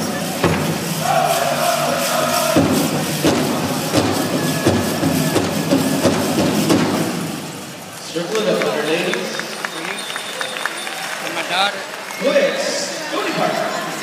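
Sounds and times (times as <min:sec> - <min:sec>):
drum beating steadily: 0:00.0 - 0:07.7
group singing in high voices: 0:00.2 - 0:06.4.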